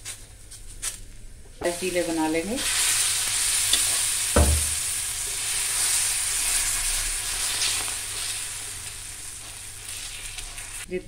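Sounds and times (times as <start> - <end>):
batter sizzling on hot griddle: 1.7 - 11.0
short knock: 4.4 - 4.8.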